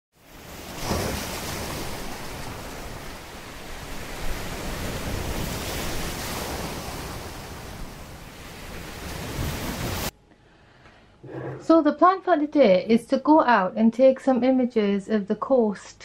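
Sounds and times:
ocean waves breaking on shore: 0.2s - 10.1s.

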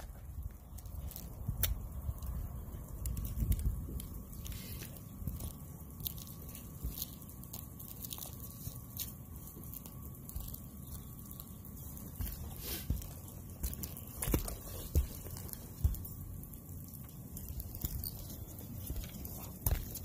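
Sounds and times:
light crunches on shingle roof: 0.0s - 20.0s
boots stepping on shingles: 8.9s - 20.0s.

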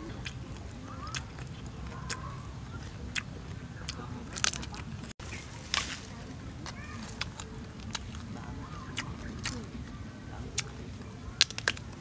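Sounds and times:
crunchy biting and chewing: 0.0s - 12.0s.

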